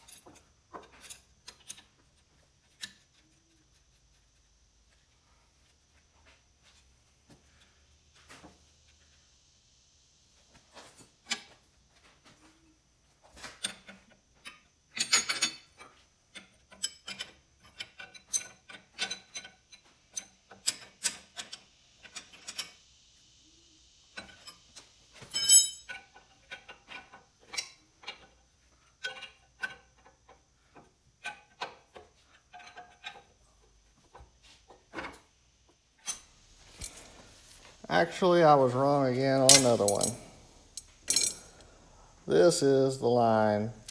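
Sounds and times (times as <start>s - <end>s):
wrenches and metal fittings clinking: 13.6s - 22.7s, 25.2s - 28.3s, 39.2s - 41.6s
metal clank: 39.4s - 40.2s, 40.8s - 41.5s.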